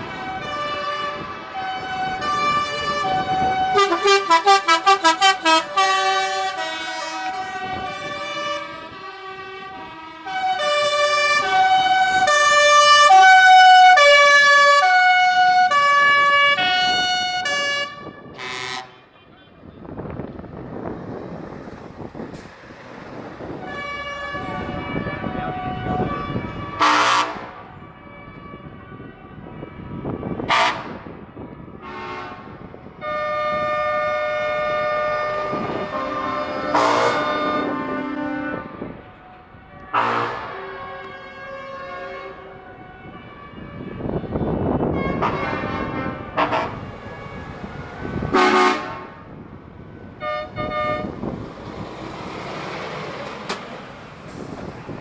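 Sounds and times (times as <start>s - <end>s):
truck musical horn: 0.0s - 19.3s, 23.4s - 49.4s, 50.1s - 51.5s
truck driving past: 19.8s - 26.7s, 32.3s - 39.2s, 44.8s - 55.0s.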